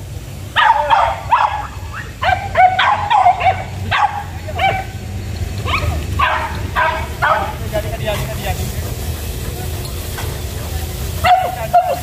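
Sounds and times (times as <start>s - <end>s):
dogs yelping and baying: 0.5s - 7.6s, 11.2s - 12.0s.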